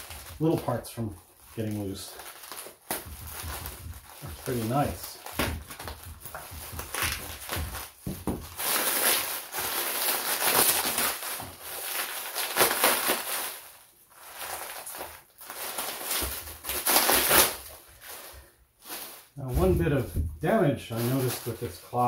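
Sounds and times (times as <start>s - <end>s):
plastic wrap crinkling: 0.0s - 22.0s.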